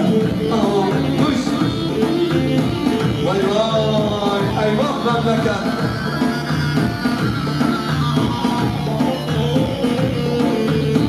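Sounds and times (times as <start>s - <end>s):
dance music with bending melody: 0.0s - 11.0s.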